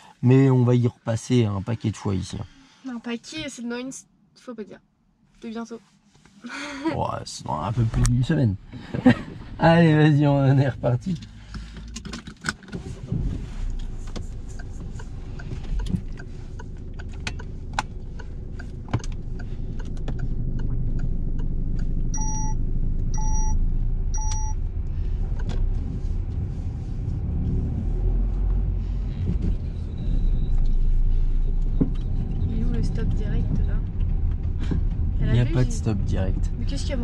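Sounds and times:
car engine and road rumble: 0.0 - 37.0
car electronic warning chime: 22.1 - 24.6.

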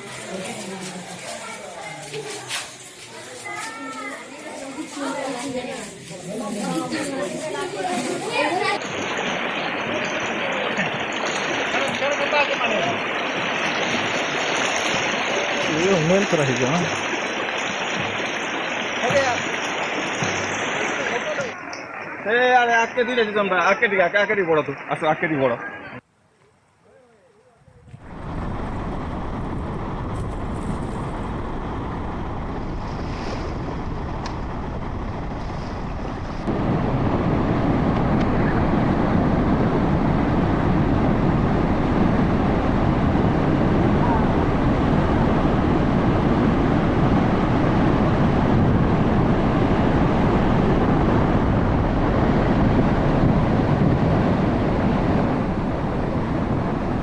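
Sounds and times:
floodwater rushing over spillways: 6.6 - 26.0, 27.8 - 57.0
wind buffeting microphone: 27.6 - 57.0.

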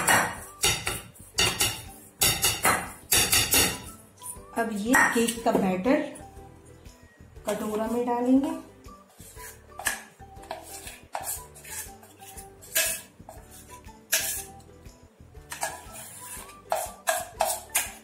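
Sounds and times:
background music: 0.0 - 18.0
spoon scraping steel saucepan: 9.2 - 14.6, 15.5 - 18.0.

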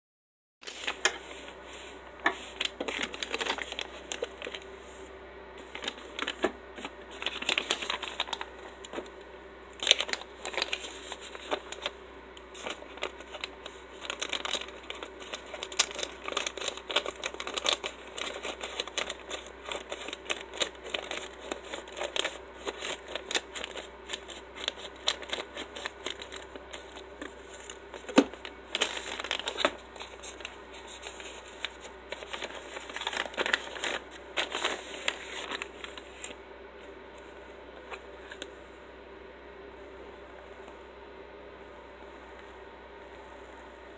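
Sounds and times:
plastic mailers crinkling: 0.6 - 4.8, 5.6 - 9.2, 9.8 - 36.4.

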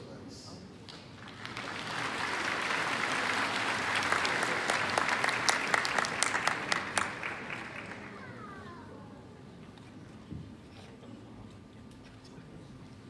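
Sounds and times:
nearby claps: 0.8 - 8.6
audience applauding: 0.9 - 8.9.

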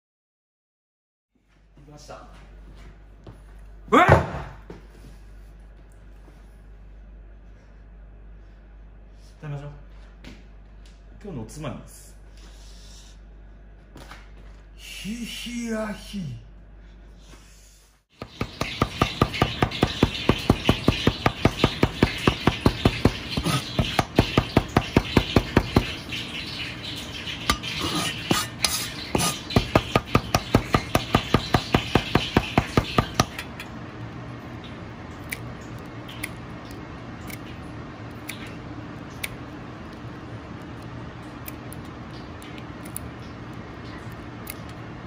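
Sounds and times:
cleaver chopping on cutting board: 18.2 - 25.8, 29.2 - 33.4.

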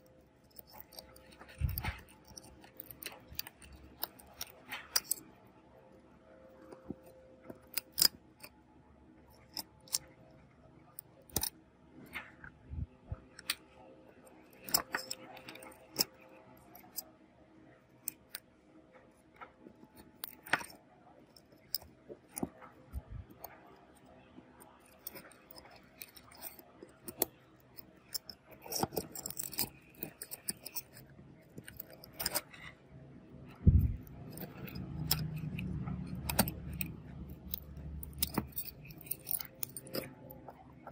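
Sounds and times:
rubbing and handling noise: 0.0 - 5.3, 24.6 - 40.9
metal tweezers tapping and scraping: 0.0 - 5.4, 6.6 - 8.6, 9.3 - 10.2, 10.9 - 12.5, 13.3 - 17.1, 18.0 - 18.4, 19.8 - 23.8, 24.6 - 32.8, 33.5 - 40.9.

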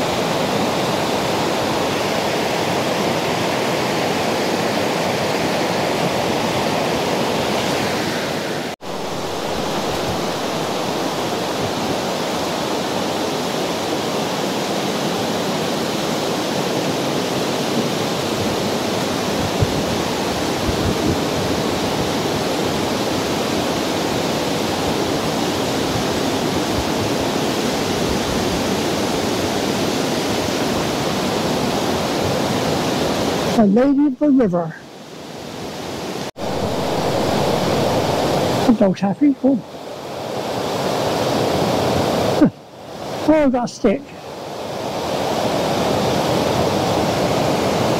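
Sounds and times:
rushing river water: 0.0 - 33.7, 34.3 - 47.9.

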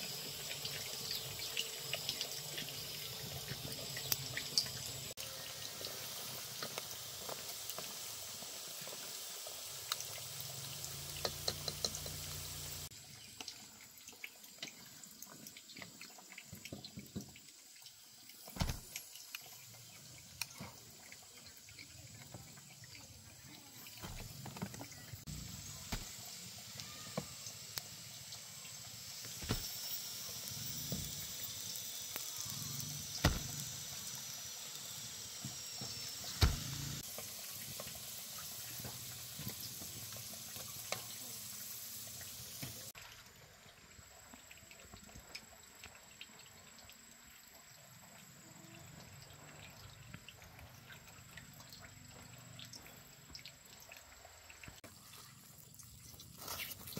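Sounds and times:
tap water splashing into sink: 15.4 - 19.4, 33.1 - 33.9.

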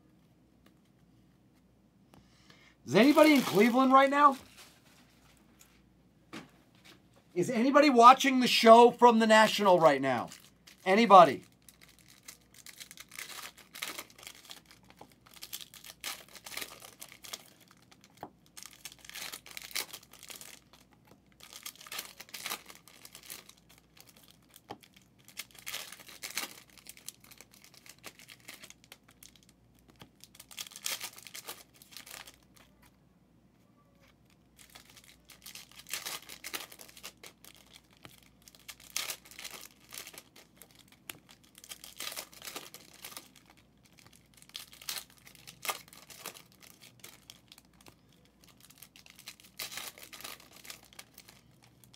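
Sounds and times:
packaging tearing and crinkling: 2.9 - 4.4, 8.5 - 32.8, 34.6 - 51.9.

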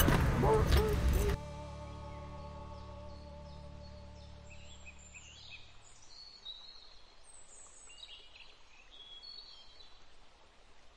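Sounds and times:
held low musical chord: 0.0 - 5.5
small birds chirping: 2.8 - 10.2.

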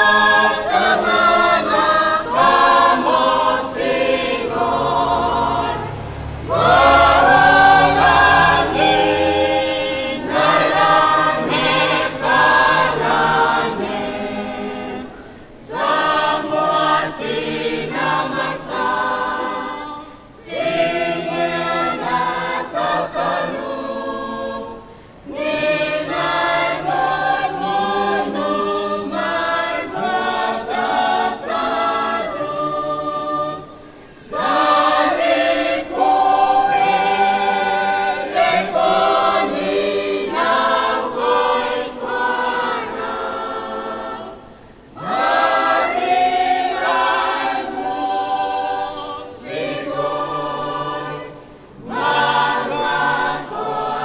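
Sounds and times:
choir singing a hymn: 0.0 - 54.0.

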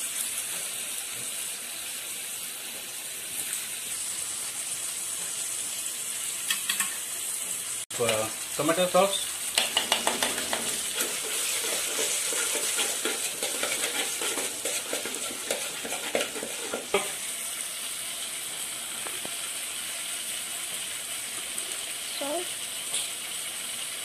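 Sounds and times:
food sizzling in a wok: 0.0 - 24.0
spatula scraping a pan: 9.7 - 17.2.

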